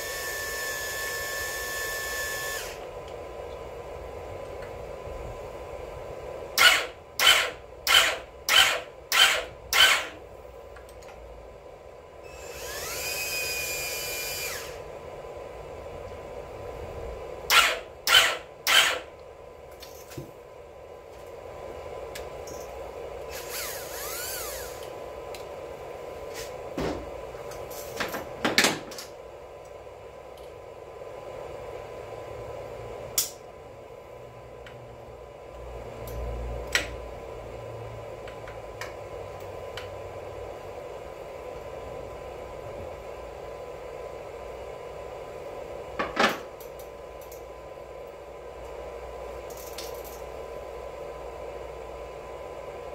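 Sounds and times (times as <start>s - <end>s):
cordless drill bursts: 0.0s - 2.8s, 6.6s - 10.2s, 12.3s - 14.8s, 17.5s - 19.1s, 23.3s - 24.9s
steady background hum: 0.0s - 52.9s
clinks of tools and metal parts: 19.8s - 20.3s, 22.4s - 22.8s, 49.5s - 50.3s.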